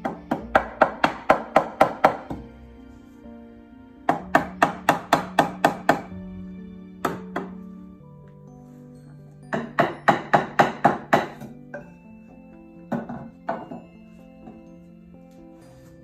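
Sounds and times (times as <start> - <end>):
hammer blows on wooden frame: 0.0 - 2.5, 4.0 - 6.2, 9.5 - 11.9
background music: 0.0 - 16.0.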